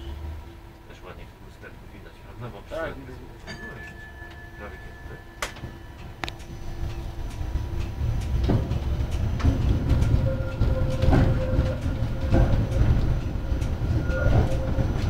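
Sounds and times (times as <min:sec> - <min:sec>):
tram running rumble: 0:00.0 - 0:15.0
tram wheels clacking over rails: 0:00.0 - 0:15.0.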